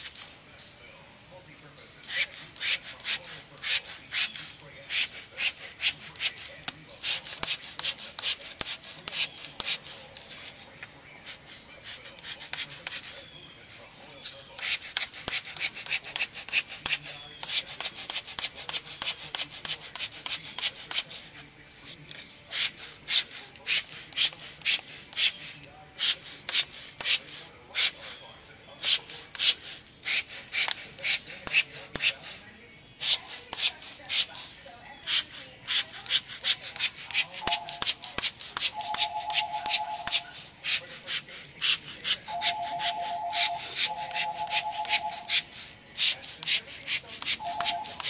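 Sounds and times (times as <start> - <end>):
spray bottle spritzing: 2.0 - 10.6, 14.6 - 21.4, 22.5 - 28.2, 28.8 - 32.4, 35.0 - 48.0.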